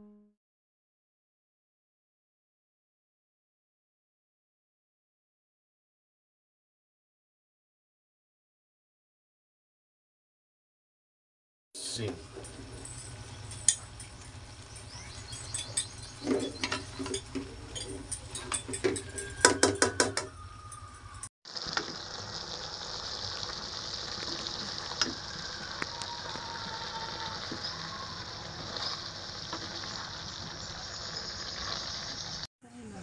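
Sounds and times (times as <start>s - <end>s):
food sizzling in a pan: 21.5s - 32.5s
spatula scraping a wok: 26.7s - 32.4s.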